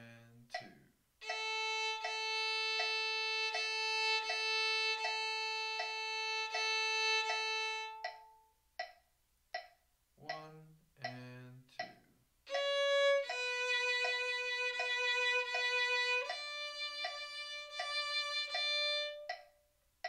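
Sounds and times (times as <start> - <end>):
metronome clicking: 0.5 - 19.6
violin long bowed note: 1.2 - 8.0, 12.5 - 19.4.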